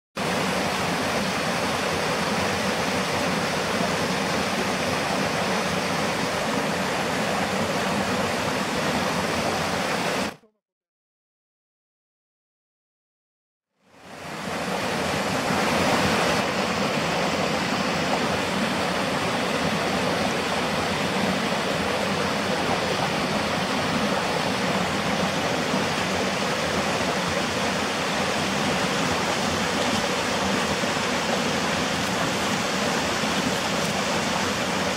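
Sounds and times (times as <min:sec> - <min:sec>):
stream rushing over rocks: 0:00.2 - 0:10.4, 0:14.0 - 0:34.9.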